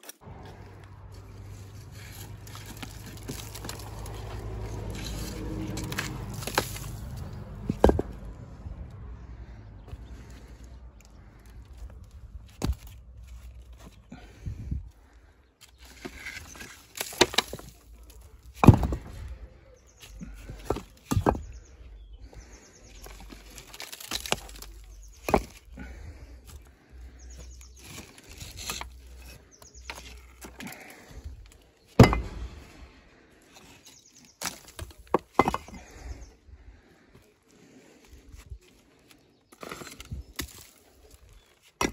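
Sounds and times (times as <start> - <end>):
mortar scraping and crumbling: 0.0 - 8.3, 9.4 - 36.3, 36.9 - 41.9
bricks knocking together: 5.7 - 8.3, 16.0 - 19.4, 20.2 - 21.7, 23.0 - 26.5, 32.0 - 32.7, 34.4 - 36.1.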